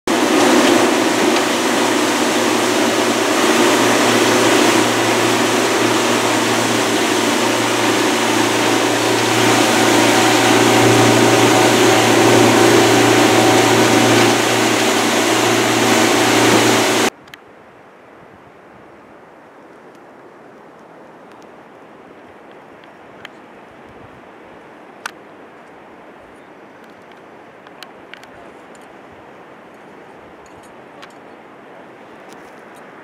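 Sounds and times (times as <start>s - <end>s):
boat motor running: 0.0s - 17.1s
wake water churning: 0.1s - 17.1s
wind rushing: 0.1s - 17.1s.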